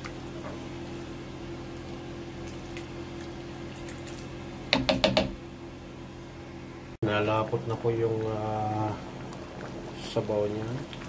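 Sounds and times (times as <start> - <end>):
thick soup being stirred in a pan: 7.2 - 11.0.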